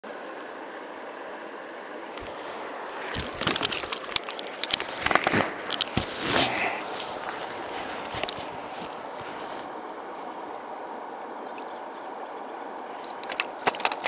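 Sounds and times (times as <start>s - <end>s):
river water rushing over stones: 2.1s - 14.0s
clicks knocks and rustles: 3.1s - 9.0s, 13.0s - 14.0s.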